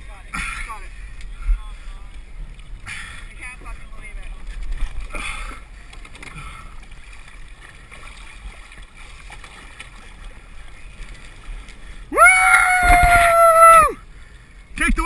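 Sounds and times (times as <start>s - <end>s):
water sloshing and gurgling: 0.0s - 14.8s
person whooping: 12.1s - 14.0s.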